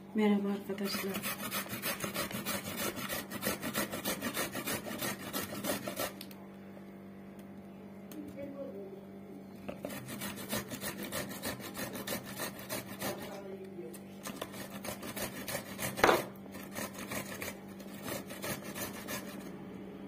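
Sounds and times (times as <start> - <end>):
cucumber grated on metal grater: 0.8 - 6.2, 9.7 - 13.4, 14.2 - 19.6.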